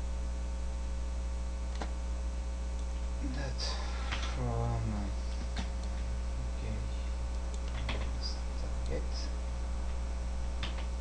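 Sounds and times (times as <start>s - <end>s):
electrical hum: 0.0s - 11.0s
computer keyboard clicks: 7.5s - 8.2s, 10.6s - 10.9s.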